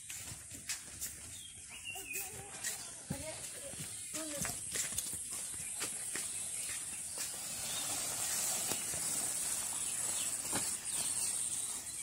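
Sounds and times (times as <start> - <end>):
steady high-pitched hiss: 5.8 - 12.0
plastic sack rustling and crinkling: 6.2 - 12.0.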